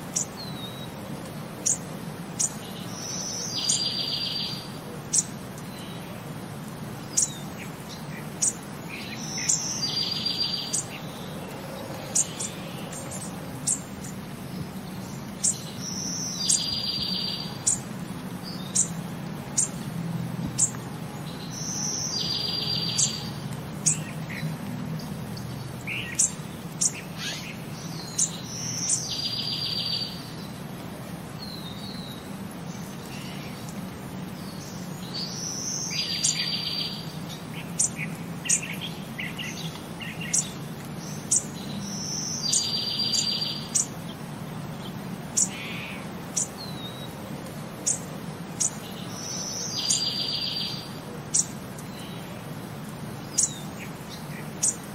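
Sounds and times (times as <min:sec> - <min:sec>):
small birds chirping: 0:00.0 - 0:54.9.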